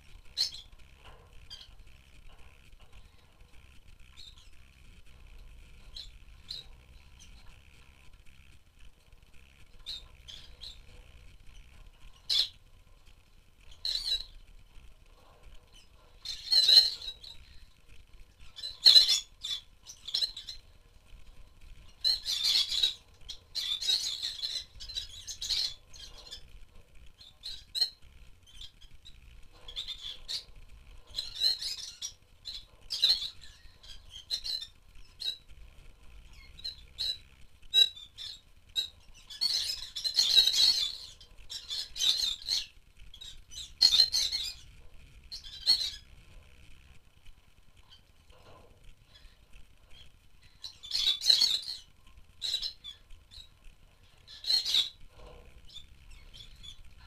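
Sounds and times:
lovebirds chirping and squawking: 0.0 - 47.0, 47.7 - 57.0.

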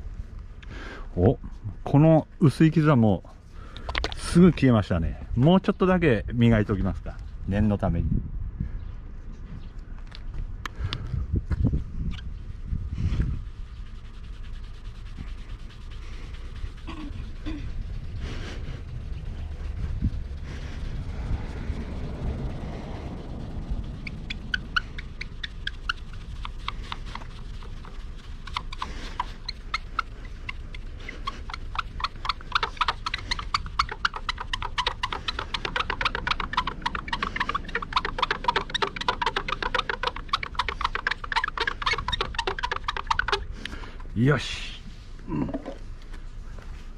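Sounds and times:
cloth squeaking on car paint: 12.1 - 44.0.

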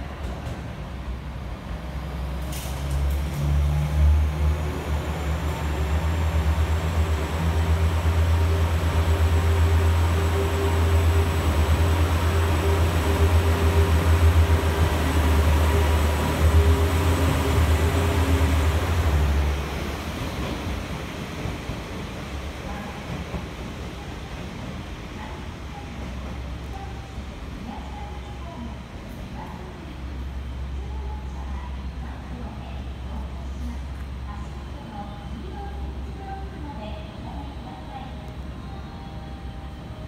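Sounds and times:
diesel railcar engine rumbling: 0.0 - 40.0.

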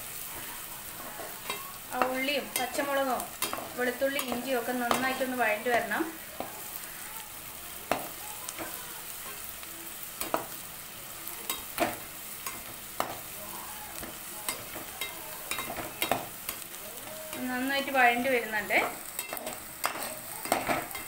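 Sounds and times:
vegetables sizzling in hot oil: 0.0 - 21.0
metal spatula scraping a pan: 0.2 - 7.0, 17.3 - 21.0.

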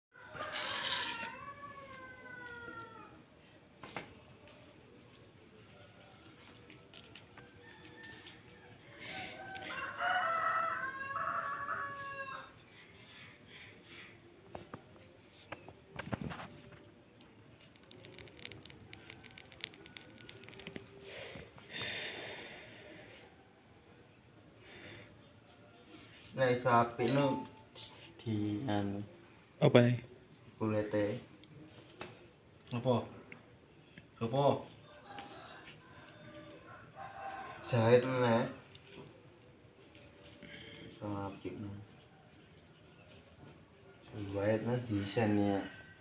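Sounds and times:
rooster crowing: 0.2 - 3.4, 7.0 - 12.9, 17.8 - 24.2, 34.7 - 39.1, 45.2 - 46.0.

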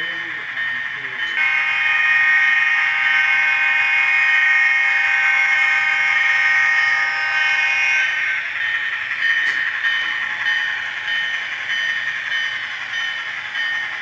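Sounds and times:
buzzy model train horn: 1.4 - 8.4.

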